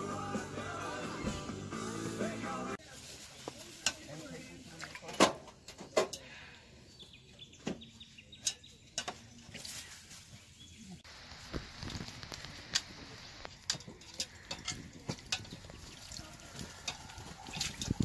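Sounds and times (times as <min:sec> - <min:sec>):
steady hiss: 0:11.0 - 0:13.7.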